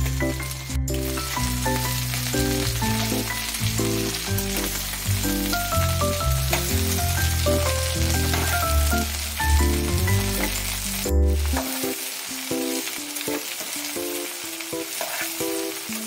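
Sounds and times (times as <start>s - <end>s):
background music with bass line: 0.0s - 11.6s
okra sizzling in a pan: 0.0s - 16.0s.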